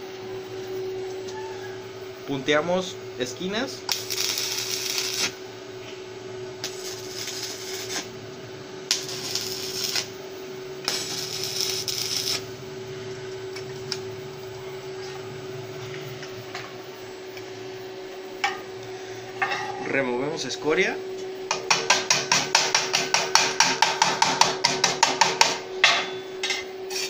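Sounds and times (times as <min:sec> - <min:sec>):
steady hum: 0:00.0 - 0:27.0
welding arc crackling: 0:03.4 - 0:05.4, 0:06.6 - 0:10.2, 0:10.8 - 0:12.5.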